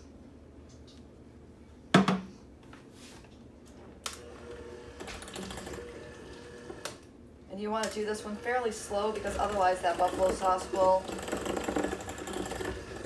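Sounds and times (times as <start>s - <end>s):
electric hand mixer running: 4.2s - 7.0s, 7.9s - 13.0s
mixer beaters rattling in bowl: 8.4s - 13.0s.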